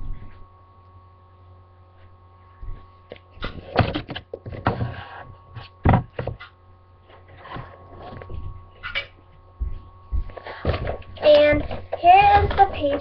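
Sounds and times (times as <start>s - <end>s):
steady electrical hum: 0.0s - 13.0s
knocks and thumps: 5.8s - 6.4s.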